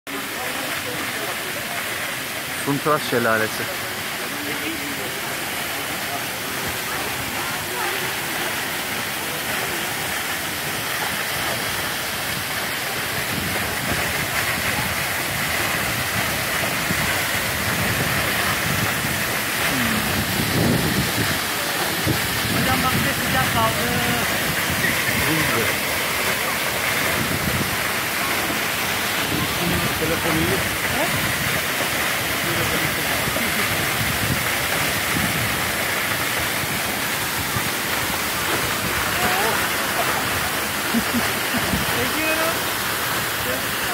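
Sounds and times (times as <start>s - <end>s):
waterfall rushing onto rocks: 0.1s - 43.9s.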